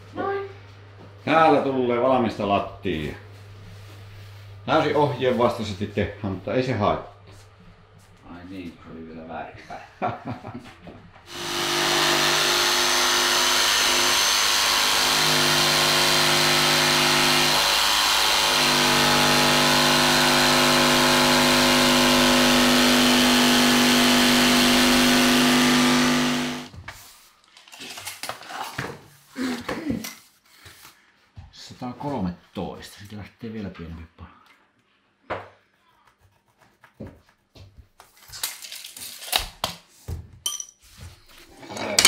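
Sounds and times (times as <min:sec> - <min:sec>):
jigsaw cutting: 0:11.3 - 0:26.7.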